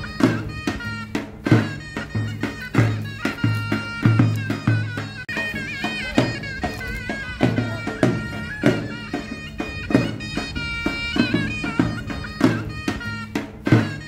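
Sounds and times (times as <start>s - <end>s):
drum hits: 0.0s - 14.0s
high ornamented melody: 0.0s - 14.0s.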